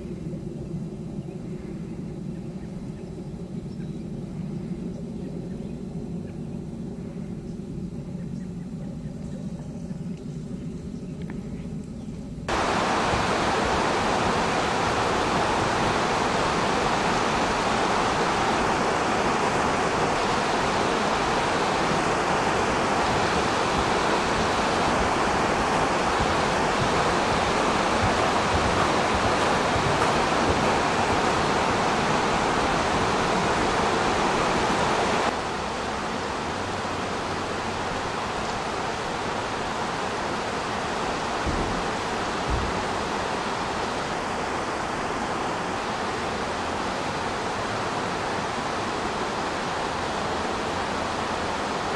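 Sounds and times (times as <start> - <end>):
steady hiss: 11.8 - 51.9.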